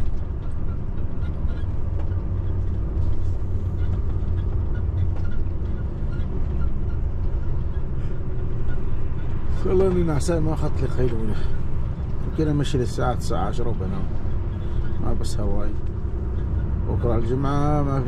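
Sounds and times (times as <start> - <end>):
truck engine and tyres drone: 0.0 - 18.0.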